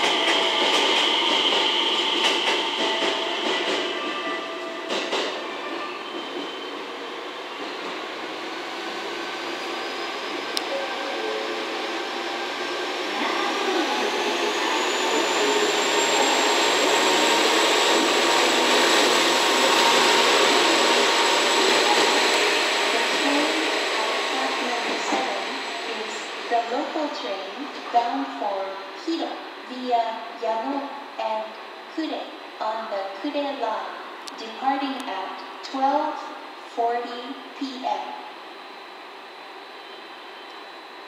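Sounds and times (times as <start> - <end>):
diesel railcar engine: 0.0 - 28.7.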